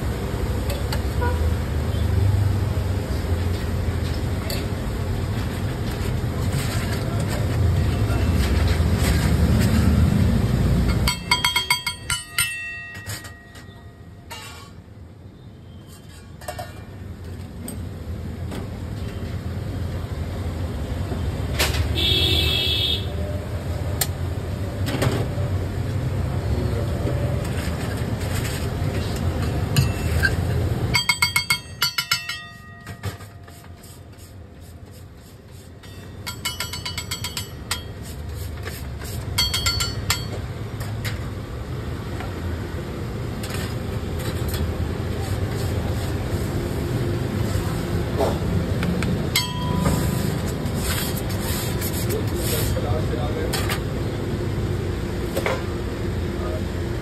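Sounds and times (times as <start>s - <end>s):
street traffic rumble: 0.0s - 57.0s
metal utensils clinking on griddle: 10.8s - 14.8s, 15.8s - 17.8s, 27.4s - 34.3s, 35.8s - 41.2s, 49.3s - 51.4s.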